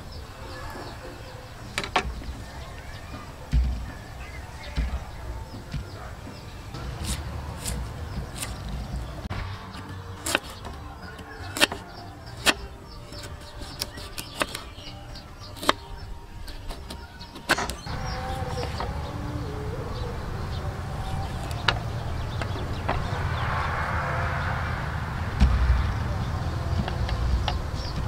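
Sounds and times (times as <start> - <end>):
knife chopping on wooden board: 9.8 - 10.8, 11.5 - 14.7.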